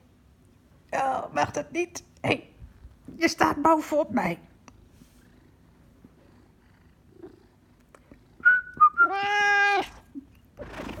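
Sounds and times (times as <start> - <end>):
person whistling: 8.4 - 9.1
cat meowing: 9.0 - 10.0.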